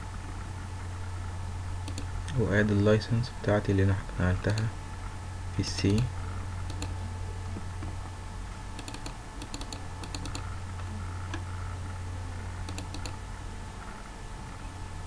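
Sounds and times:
low electrical hum: 0.0s - 15.0s
computer mouse clicks: 1.8s - 2.1s, 6.7s - 7.0s, 8.8s - 10.5s, 12.7s - 13.2s.

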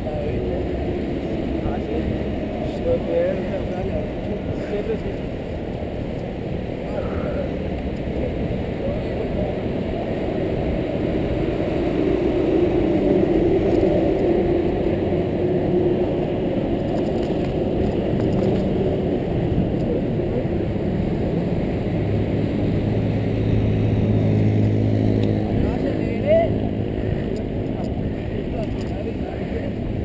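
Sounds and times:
wind rush on microphone: 0.0s - 30.0s
bike tyres on asphalt: 9.9s - 20.4s.

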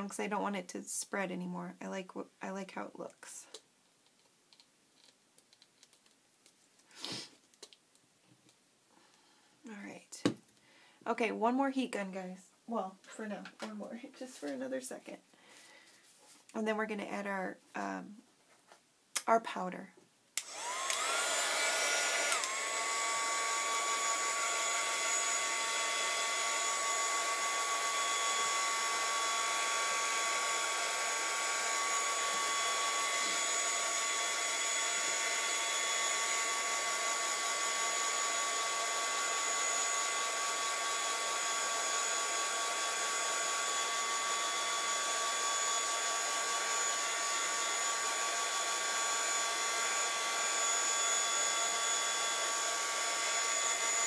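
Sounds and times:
heat gun blowing with motor whine: 20.4s - 54.0s.

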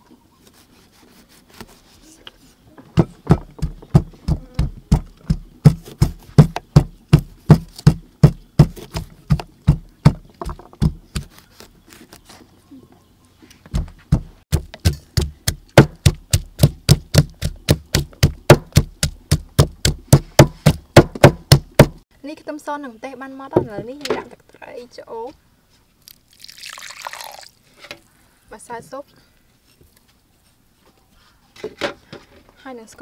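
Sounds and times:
pestle pounding in mortar: 3.0s - 11.4s, 13.7s - 22.0s.

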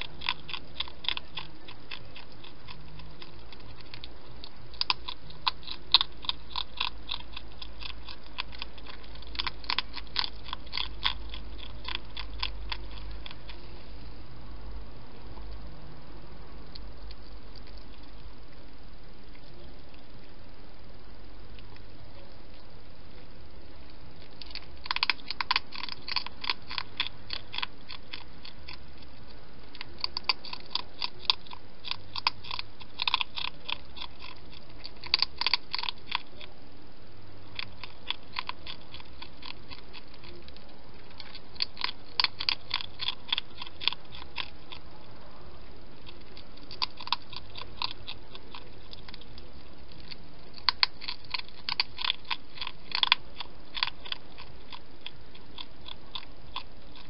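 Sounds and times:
hedgehog chewing clicks: 0.0s - 13.6s, 23.9s - 36.6s, 37.4s - 44.9s, 46.0s - 57.0s.

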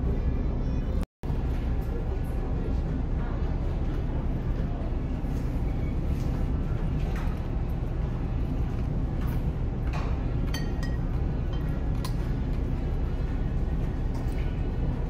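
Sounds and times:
ship engine low rumble: 0.0s - 15.0s
dishes and cutlery clinking: 10.4s - 12.3s.

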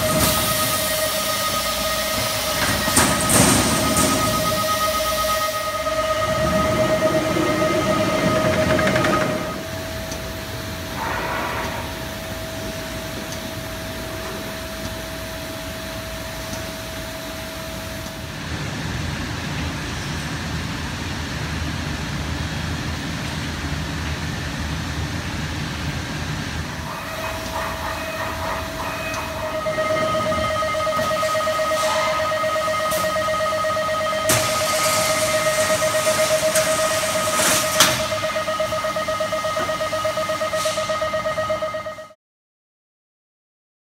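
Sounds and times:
mechanical whine: 0.0s - 18.5s, 26.4s - 42.2s.

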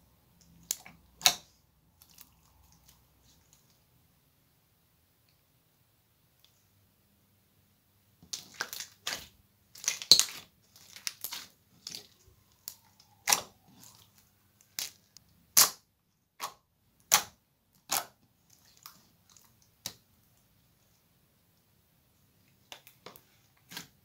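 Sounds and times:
slime popping and crackling: 8.2s - 20.0s.

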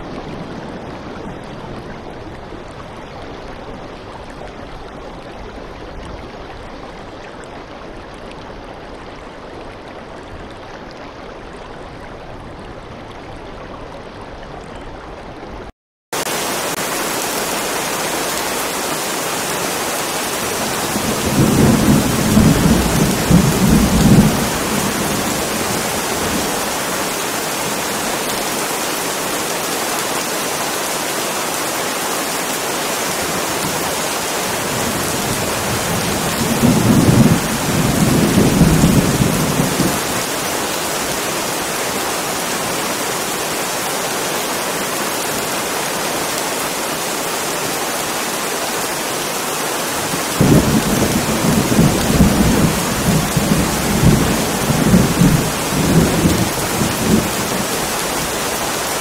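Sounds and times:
heavy rain: 0.0s - 59.0s
thunder rumbling: 20.5s - 26.6s, 34.6s - 40.2s, 50.3s - 58.4s.

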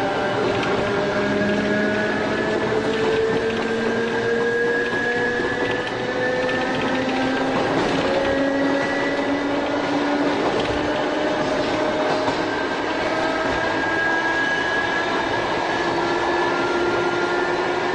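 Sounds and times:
electric train motors whining: 0.0s - 17.9s
wheels rumbling on rail: 0.0s - 17.9s.

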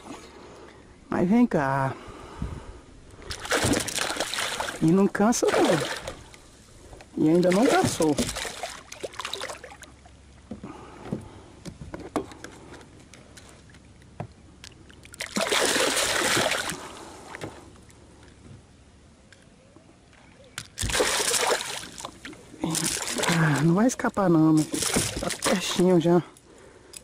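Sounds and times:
fish splashing in water: 3.2s - 6.3s, 7.3s - 10.1s, 14.9s - 17.1s, 20.8s - 23.6s.

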